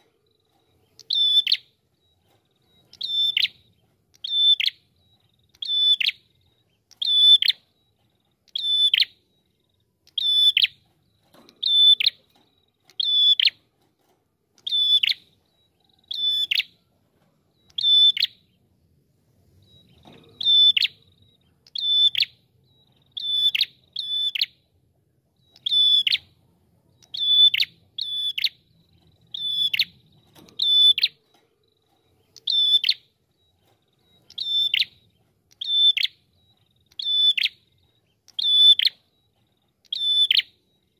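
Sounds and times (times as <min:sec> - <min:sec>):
songbird sharp calls: 0:02.9 - 0:07.6, 0:23.0 - 0:24.5, 0:32.3 - 0:33.1, 0:34.2 - 0:39.0, 0:39.8 - 0:40.6.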